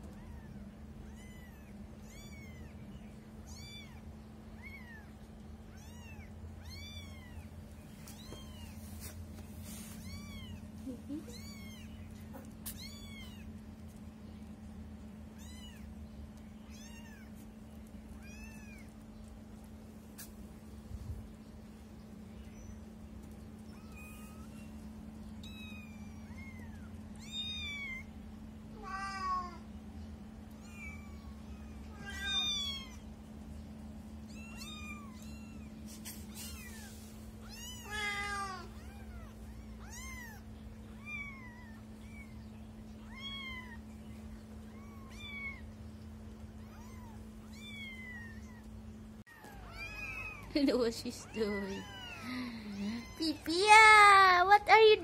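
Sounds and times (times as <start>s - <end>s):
faint steady hum: 0.0s - 55.0s
kittens mewing: 10.0s - 13.5s, 30.5s - 33.2s, 34.1s - 50.6s, 51.2s - 53.5s.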